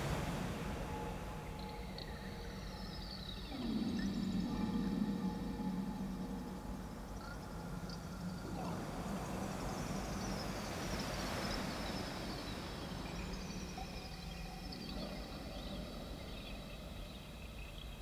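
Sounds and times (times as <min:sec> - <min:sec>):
low electronic hum: 0:00.9 - 0:10.6.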